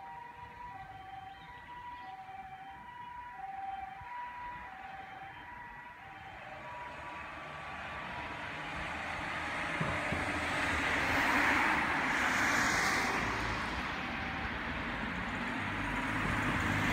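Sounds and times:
cars driving past: 0:06.7 - 0:16.9.

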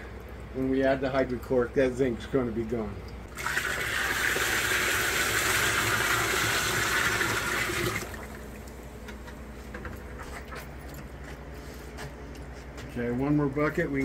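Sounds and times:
water splashing into barrel: 0:03.3 - 0:08.5.

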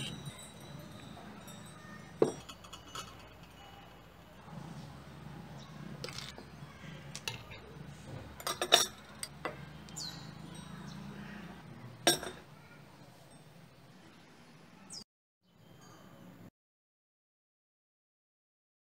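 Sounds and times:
ice and spoon clinking on glass: 0:00.0 - 0:04.4, 0:06.0 - 0:06.4, 0:08.4 - 0:11.4, 0:12.0 - 0:12.5.

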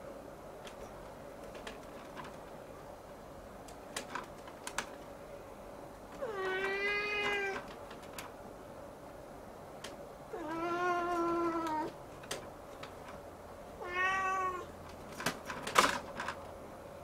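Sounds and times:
faint steady hum: 0:00.0 - 0:17.0
kitten meowing: 0:13.8 - 0:14.7.

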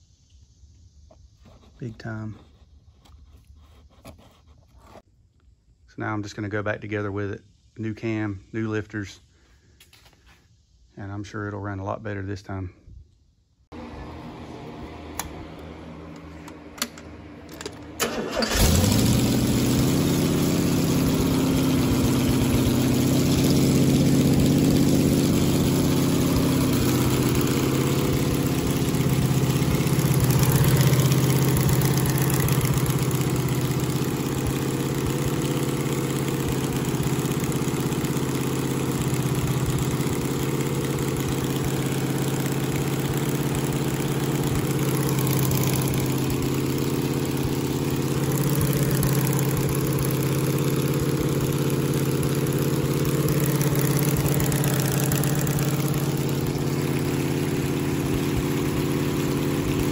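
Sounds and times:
car engine starting and running: 0:13.7 - 0:59.9.

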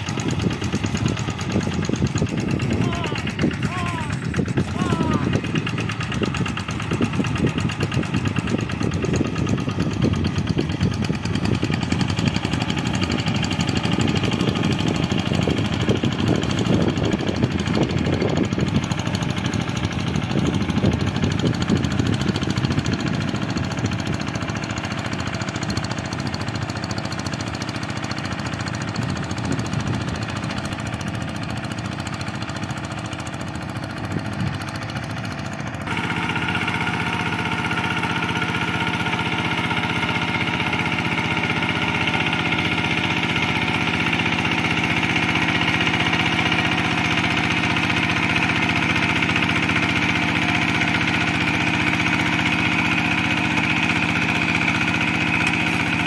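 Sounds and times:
diesel engine chugging: 0:00.0 - 0:56.0.

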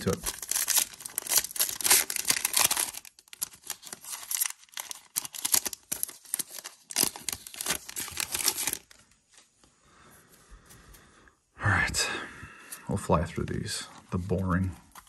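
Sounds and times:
foil wrapper tearing and crinkling: 0:00.0 - 0:09.0.

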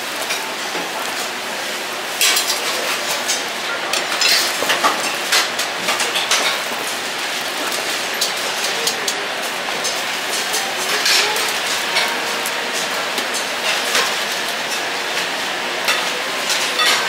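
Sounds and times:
cutlery and plates clinking: 0:02.2 - 0:06.7, 0:15.9 - 0:17.0.

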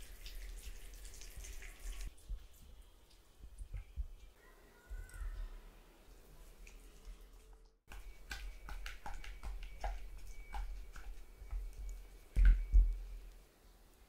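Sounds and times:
spatula squishing and scraping in bowl: 0:06.4 - 0:12.8.

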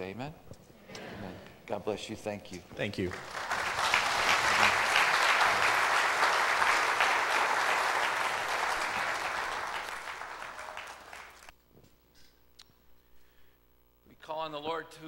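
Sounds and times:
congregation clapping: 0:03.0 - 0:11.5.

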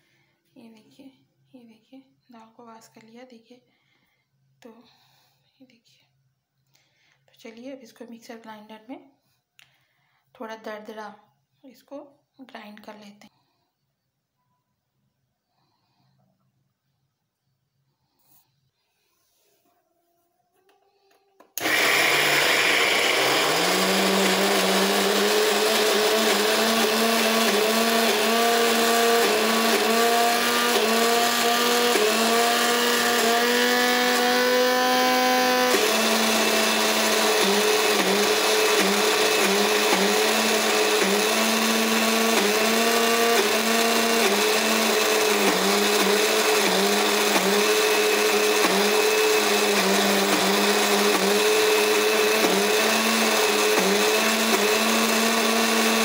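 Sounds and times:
mixer grinder motor whine: 0:21.5 - 0:56.0.

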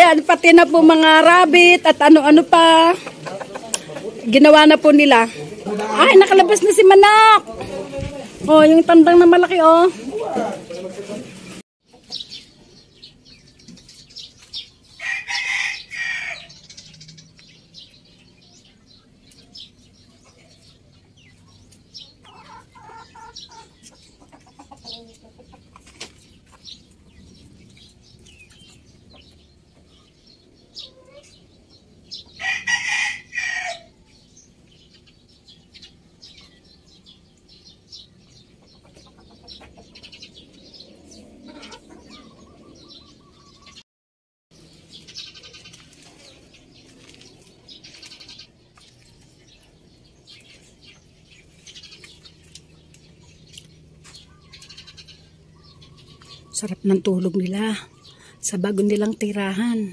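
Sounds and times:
rooster crowing: 0:15.0 - 0:16.8, 0:32.4 - 0:34.0.

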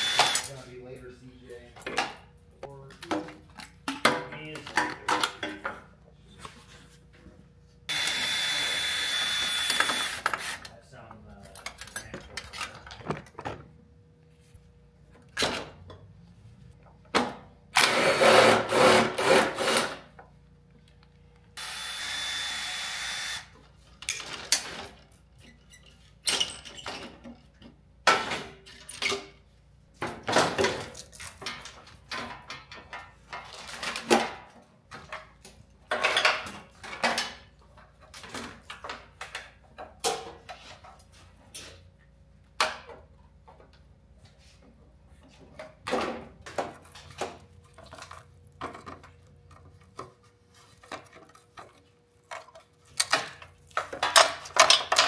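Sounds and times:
power tool running: 0:00.0 - 0:00.5, 0:07.9 - 0:10.6, 0:17.7 - 0:20.0, 0:21.6 - 0:23.6
tools and metal parts clanking: 0:00.2 - 0:06.0, 0:10.0 - 0:13.7, 0:23.9 - 0:41.8, 0:45.6 - 0:55.0.

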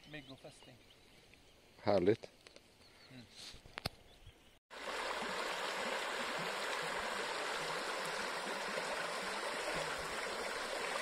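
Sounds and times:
river running over stones: 0:04.7 - 0:11.0.

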